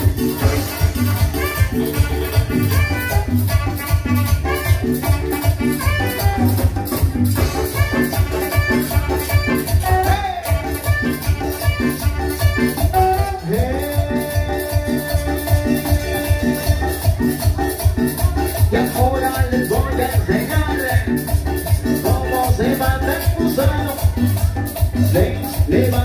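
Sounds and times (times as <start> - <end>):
saxophone: 0.0 - 20.4
drums: 0.0 - 26.0
pulsing bass beat: 0.0 - 26.0.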